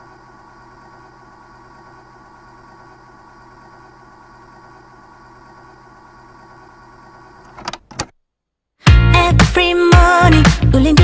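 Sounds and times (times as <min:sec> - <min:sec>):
steady multi-tone hum: 0:00.0 - 0:08.4.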